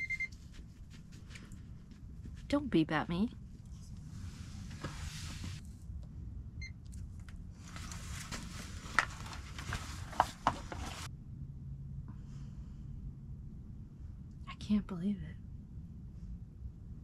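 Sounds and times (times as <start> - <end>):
cloth and plastic rustling: 3.6 - 5.6, 7.6 - 11.1.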